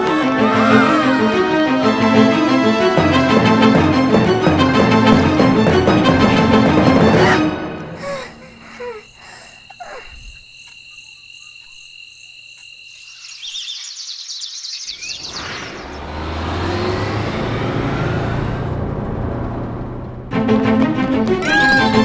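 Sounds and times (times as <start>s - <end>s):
crickets chirping: 7.2s - 16.7s
rising whoosh: 15.0s - 20.4s
vehicle rumble: 15.2s - 21.2s.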